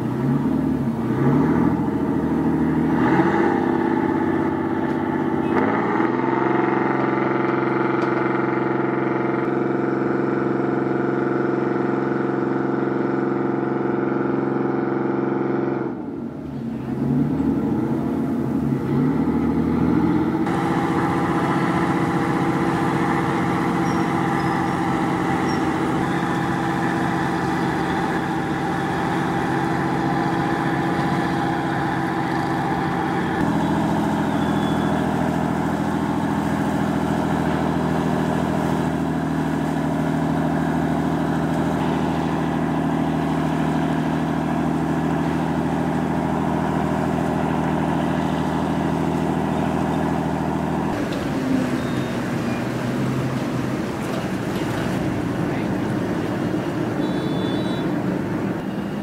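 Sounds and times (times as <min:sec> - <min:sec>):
boat engines droning: 0:00.0 - 0:59.0.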